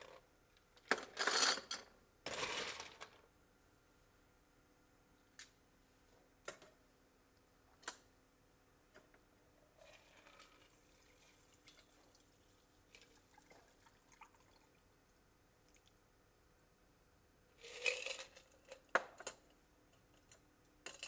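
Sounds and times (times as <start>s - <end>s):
liquid pouring and dripping: 9.8s - 14.9s.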